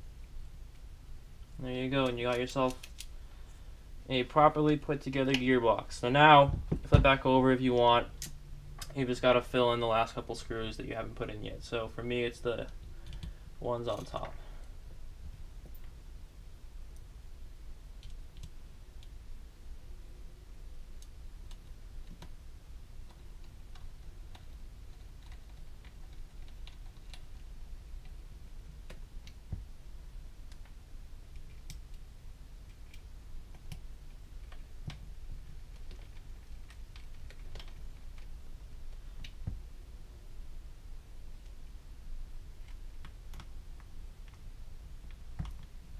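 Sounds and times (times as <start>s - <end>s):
low steady hum: 0.0s - 45.9s
small parts being handled: 2.0s - 3.2s.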